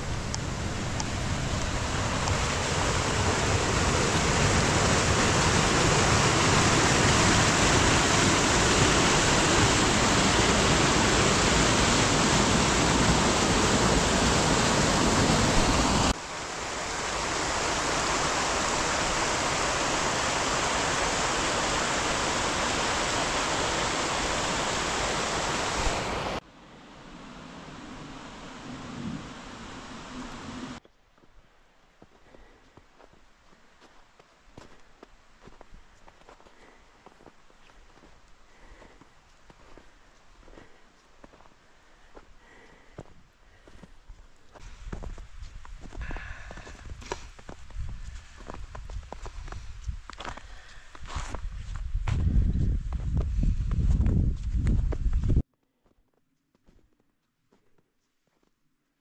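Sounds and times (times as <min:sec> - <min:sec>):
stream rushing over a weir: 0:00.0 - 0:30.8.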